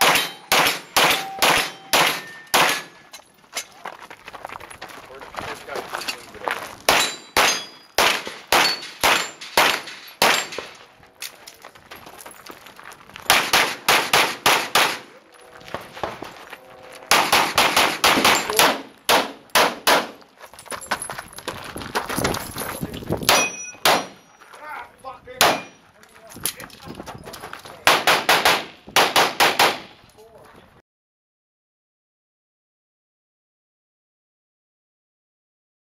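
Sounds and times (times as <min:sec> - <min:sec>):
handgun shots: 0:00.0 - 0:03.0, 0:06.9 - 0:10.7, 0:13.3 - 0:15.1, 0:17.1 - 0:20.2, 0:23.3 - 0:24.2, 0:25.4 - 0:25.7, 0:27.9 - 0:30.0
metallic ringing: 0:00.2 - 0:03.3, 0:23.3 - 0:24.4.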